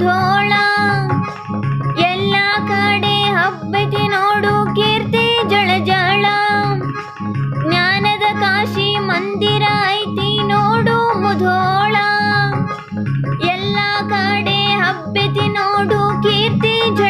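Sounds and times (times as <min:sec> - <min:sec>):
guitar accompaniment: 0:00.0 - 0:17.0
steady bass line: 0:00.0 - 0:17.0
person singing: 0:13.4 - 0:17.0.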